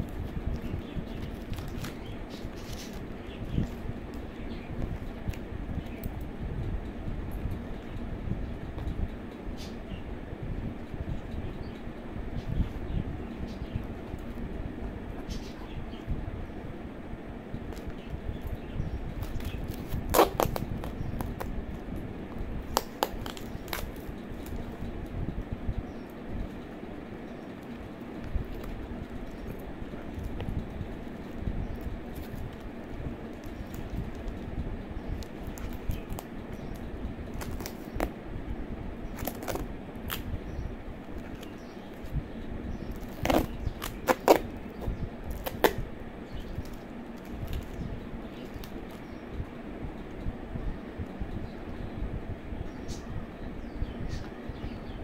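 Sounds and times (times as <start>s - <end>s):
plastic wrapping crackling: 0.0s - 5.4s, 19.2s - 21.5s, 22.6s - 24.8s, 35.2s - 38.1s, 39.1s - 40.3s, 42.9s - 45.8s, 46.6s - 47.8s.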